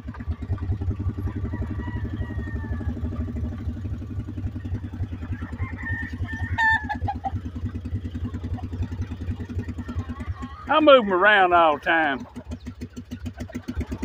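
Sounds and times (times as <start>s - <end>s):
small vehicle engine running: 0.0s - 14.0s
rooster crowing: 1.0s - 7.3s.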